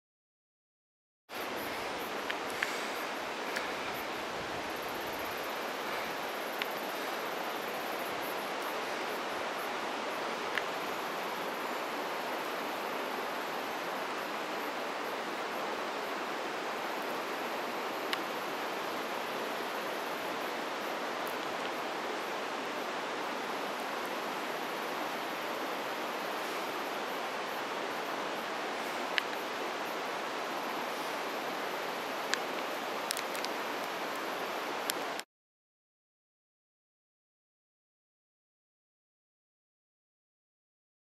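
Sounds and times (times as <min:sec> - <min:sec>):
running water rushing: 0:01.3 - 0:35.2
faint ticks: 0:01.6 - 0:04.1, 0:04.7 - 0:07.3, 0:10.5 - 0:10.8, 0:28.9 - 0:29.5, 0:32.3 - 0:35.2.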